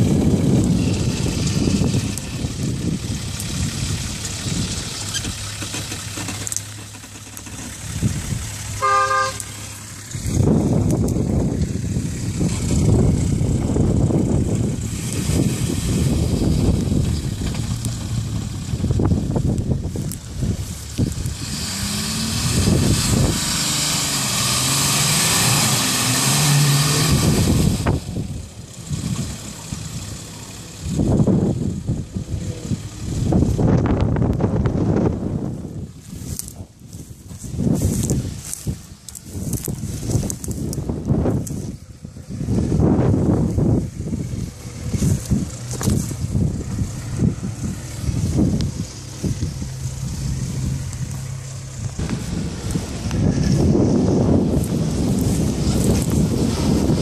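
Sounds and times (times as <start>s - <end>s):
diesel engine rumbling: 0.0s - 57.0s
short horn toot: 8.8s - 9.5s.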